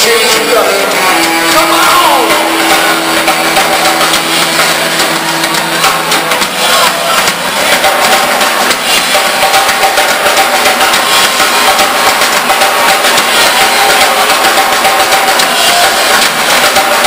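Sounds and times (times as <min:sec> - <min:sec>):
blues-rock band playing: 0:00.3 - 0:16.3
long held guitar note: 0:00.8 - 0:06.6.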